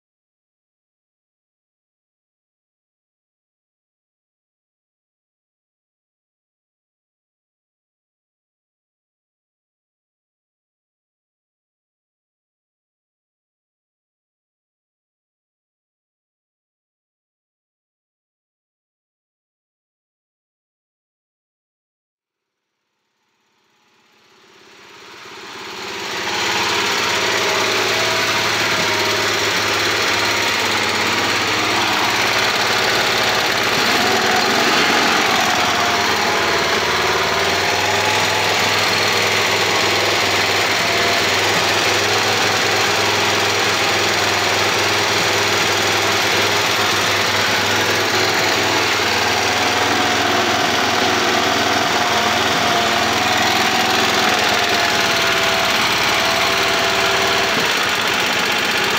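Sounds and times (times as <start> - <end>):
snowblower engine running: 23.1 - 58.9.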